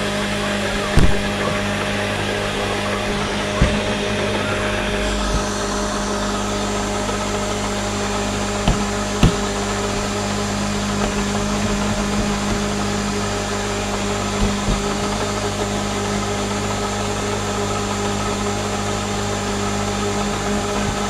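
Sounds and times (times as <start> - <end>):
blender motor running: 0.0 - 21.0
short knocks: 2.9 - 4.4, 8.6 - 10.2.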